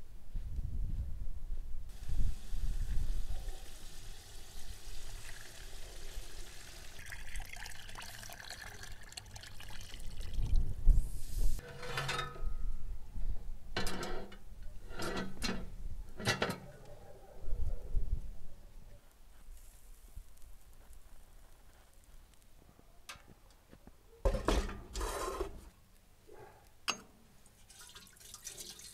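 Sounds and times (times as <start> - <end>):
sauce simmering: 1.9 - 10.4
water pouring and splashing into pot: 1.9 - 10.7, 27.4 - 28.9.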